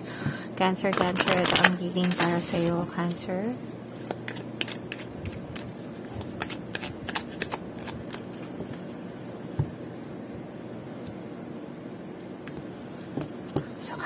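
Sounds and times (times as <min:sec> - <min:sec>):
cards being shuffled: 0:00.9 - 0:02.8, 0:04.0 - 0:08.9.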